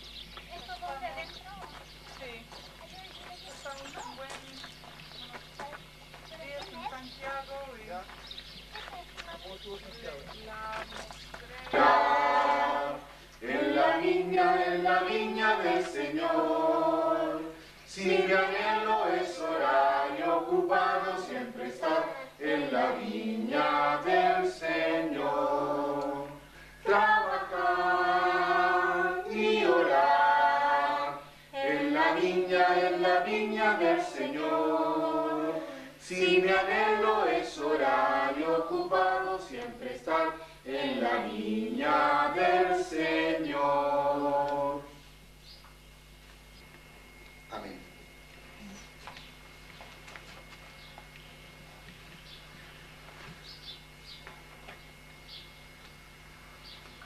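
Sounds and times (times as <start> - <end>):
group singing a hymn unaccompanied: 11.7 - 45.1.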